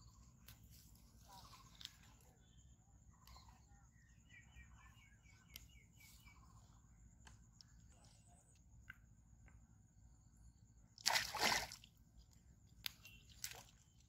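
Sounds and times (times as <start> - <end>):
fish splashing in water: 11.0 - 11.9.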